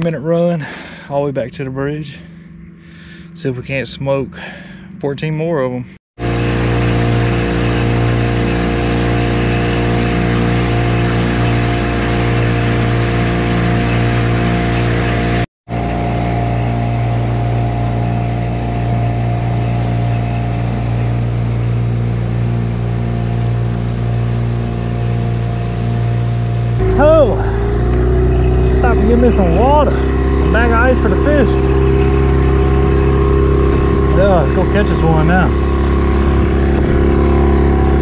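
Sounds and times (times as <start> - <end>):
outboard motor running: 1.9 - 3.4, 6.2 - 38.0
rush of boat wake: 6.2 - 38.0.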